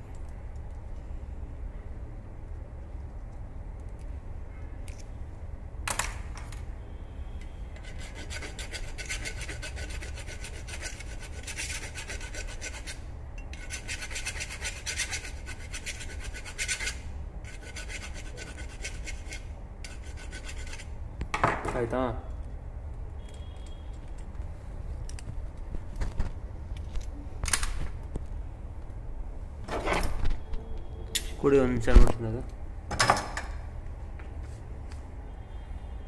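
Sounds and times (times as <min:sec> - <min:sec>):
file rasping on copper pipe: 0:07.8 - 0:20.9.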